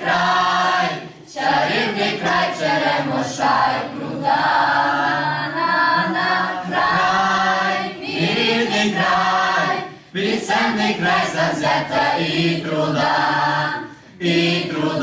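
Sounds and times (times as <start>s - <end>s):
youth choir singing: 0.0s - 15.0s.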